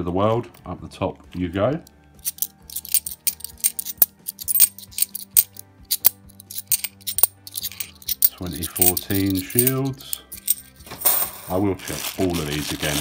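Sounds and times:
coins clicking together: 0:02.2 - 0:11.5.

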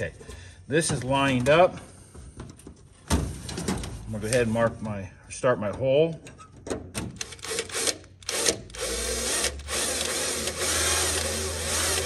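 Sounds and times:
cordless drill drilling metal: 0:07.2 - 0:12.0.

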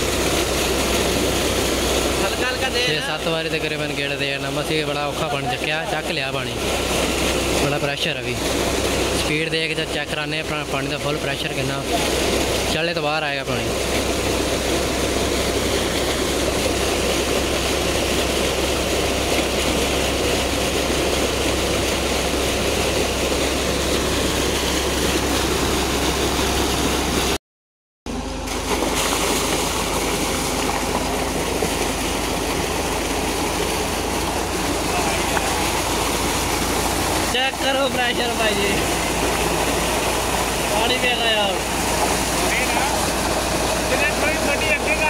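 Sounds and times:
water gushing into a tank: 0:00.0 - 0:27.4, 0:28.1 - 0:45.0
tractor engine humming: 0:10.9 - 0:27.4, 0:28.1 - 0:45.0.

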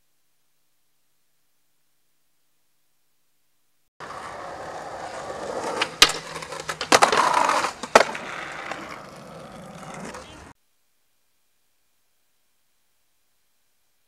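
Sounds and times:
skateboard clacks: 0:04.0 - 0:10.5
skateboard grinding on concrete: 0:04.0 - 0:10.6
skateboard wheels rolling on concrete: 0:04.0 - 0:10.6.

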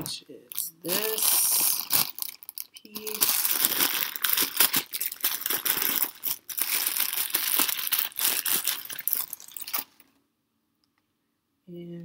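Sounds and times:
plastic bag crinkling: 0:00.5 - 0:10.1.

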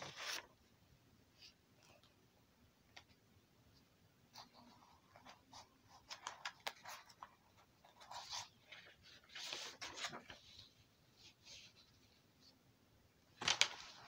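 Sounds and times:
paper rustling and scratching: 0:04.3 - 0:12.5, 0:13.4 - 0:14.0.

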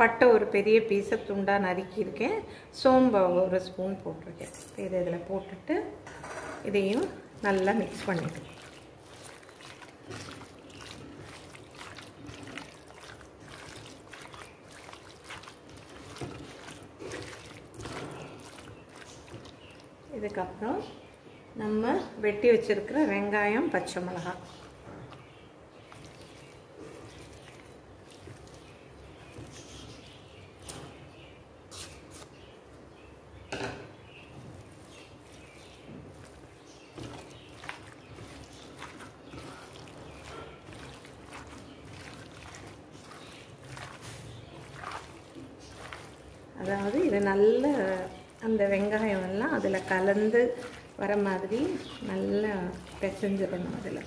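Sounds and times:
hand squelching raw chicken: 0:06.8 - 0:21.2, 0:23.9 - 0:32.6, 0:34.2 - 0:54.0.

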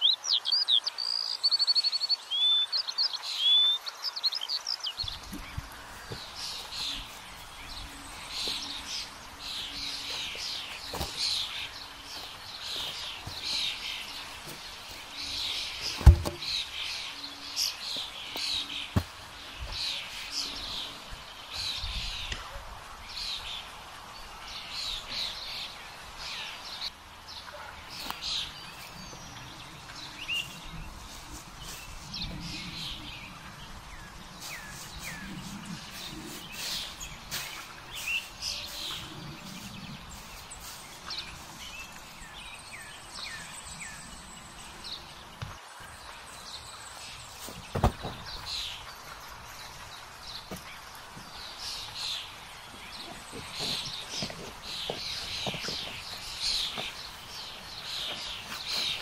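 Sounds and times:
songbirds chirping and singing: 0:00.0 - 0:59.0
steps on dry leaves: 0:05.1 - 0:16.6, 0:34.2 - 0:43.9, 0:52.9 - 0:59.0.

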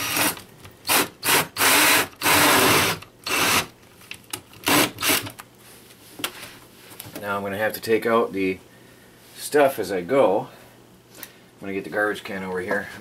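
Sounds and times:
cordless drill with hole saw: 0:00.0 - 0:03.7, 0:04.7 - 0:05.3.

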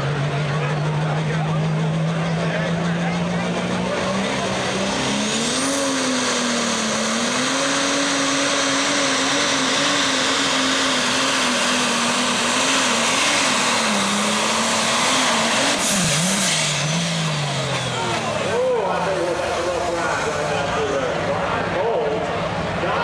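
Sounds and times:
diesel engine under load: 0:00.0 - 0:23.0.

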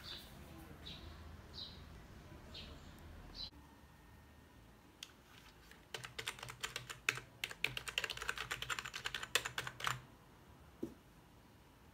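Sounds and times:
fast keyboard typing: 0:05.6 - 0:10.0.

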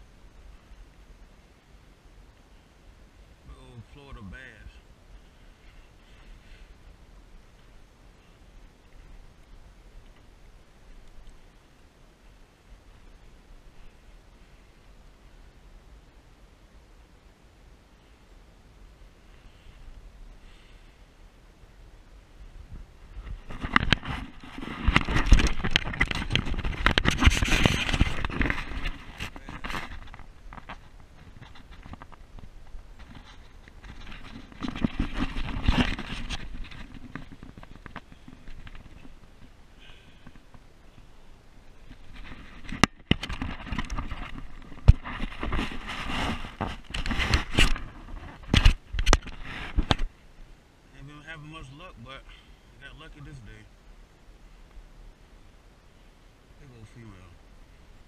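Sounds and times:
camera handling knocks and scrapes: 0:23.4 - 0:32.2, 0:41.9 - 0:50.1.

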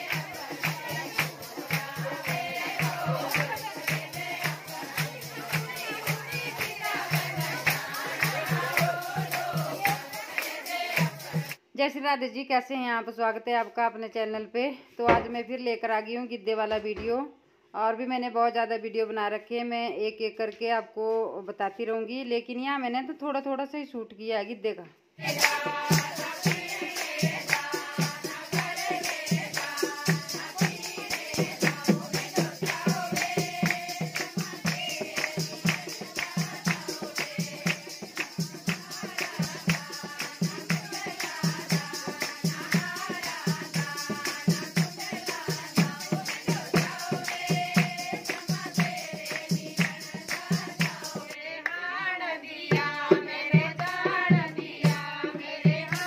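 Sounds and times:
drum beat: 0:00.0 - 0:11.5, 0:25.2 - 0:51.3
handclaps: 0:00.0 - 0:11.6, 0:25.3 - 0:45.4, 0:46.1 - 0:51.9
women singing folk song: 0:00.0 - 0:11.6, 0:25.2 - 0:56.0.

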